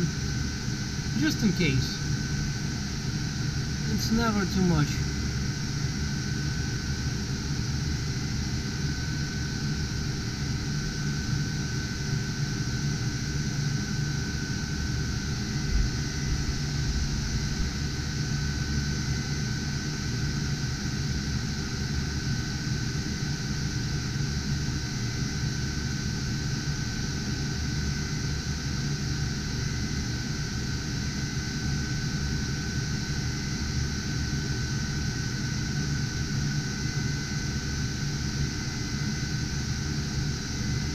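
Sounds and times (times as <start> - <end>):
thin fan whine: 0.0 - 40.9.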